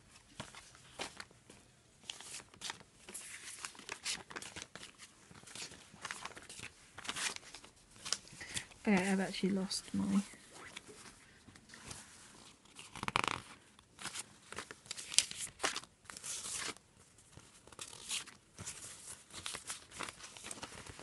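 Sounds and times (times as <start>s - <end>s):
paper sheets rustling: 2.0s - 21.0s.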